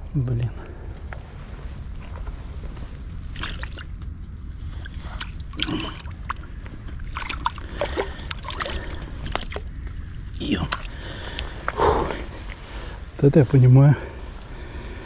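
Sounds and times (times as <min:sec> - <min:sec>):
steady low rumble: 0:00.0 - 0:15.0
fish struggling while handled: 0:03.3 - 0:04.0, 0:04.6 - 0:11.7.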